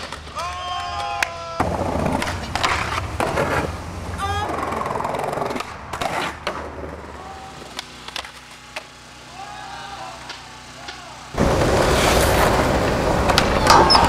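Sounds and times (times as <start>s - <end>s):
skateboard clacks popping and landing: 0.0s - 3.7s, 11.5s - 14.0s
skateboard wheels rolling on concrete: 0.0s - 14.0s.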